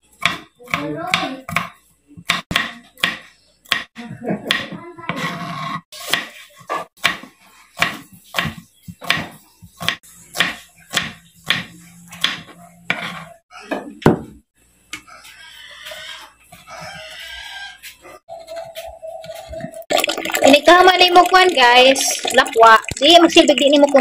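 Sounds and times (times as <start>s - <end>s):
knife chopping on wooden board: 0.2s - 3.9s, 6.0s - 13.2s.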